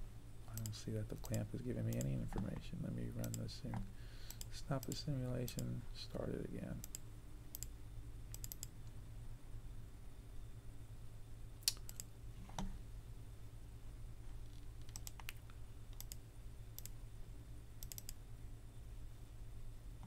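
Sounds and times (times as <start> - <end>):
faint low hum: 0.0 - 20.0
computer mouse clicks: 0.5 - 2.6, 3.2 - 5.7, 6.8 - 7.7, 8.3 - 9.0, 11.6 - 12.7, 14.4 - 16.2, 16.8 - 17.0, 17.8 - 18.2.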